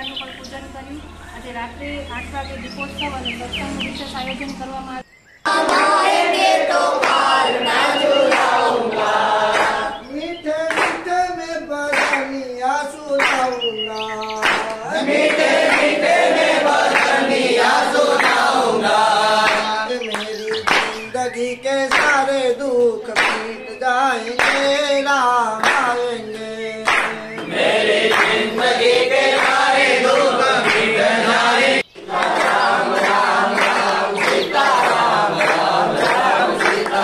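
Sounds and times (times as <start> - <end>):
hand claps: 5.5 - 8.8, 9.5 - 10.0, 10.6 - 11.2, 11.9 - 12.4, 13.1 - 13.6, 14.4 - 18.6, 19.4 - 21.1, 21.8 - 22.4, 23.1 - 23.6, 24.3 - 24.9, 25.6 - 37.0
men singing devotional song: 5.5 - 37.0.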